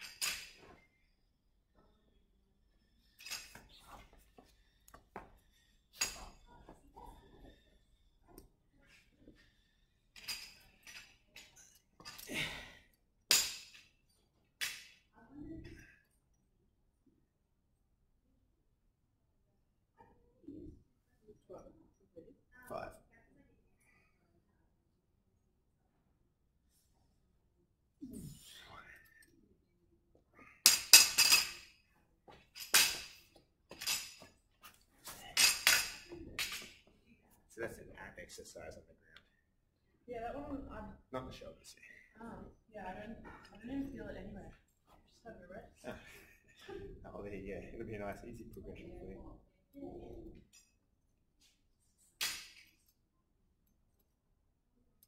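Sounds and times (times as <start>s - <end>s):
metal barbell clinking and rattling: 35.4s - 36.8s.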